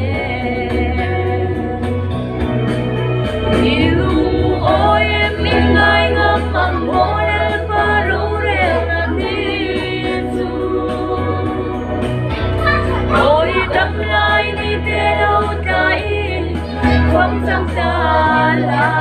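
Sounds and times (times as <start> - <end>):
group singing in harmony: 0.0 - 2.2, 3.0 - 19.0
low held notes: 1.5 - 18.4.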